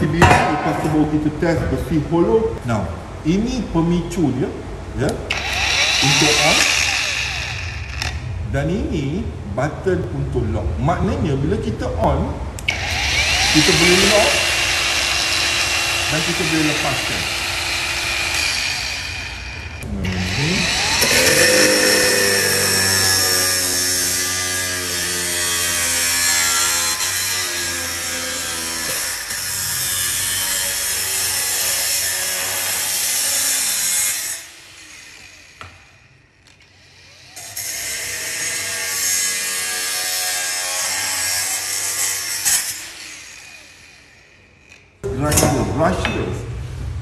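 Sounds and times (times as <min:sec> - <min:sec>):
angle grinder motor whine: 0:05.3 - 0:08.3, 0:12.7 - 0:29.4
grinding disc cutting metal: 0:05.3 - 0:08.3, 0:12.7 - 0:35.6.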